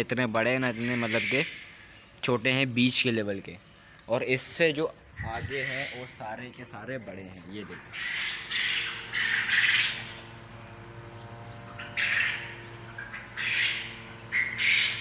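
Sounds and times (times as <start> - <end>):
steady low hum: 0.0 - 15.0
quail calling raspy: 0.7 - 2.0, 7.9 - 10.2, 11.7 - 15.0.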